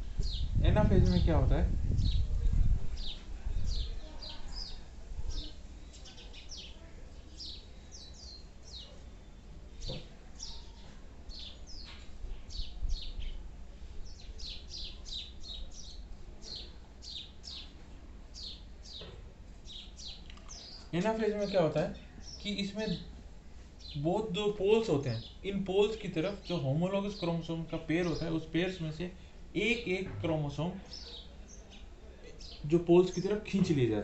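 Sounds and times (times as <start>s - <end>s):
small birds chirping: 0.0s - 34.0s.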